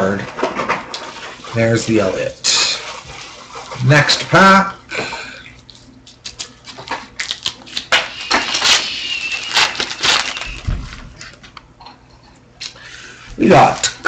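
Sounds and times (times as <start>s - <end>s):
foil wrapper crinkling and tearing: 6.1s - 11.4s.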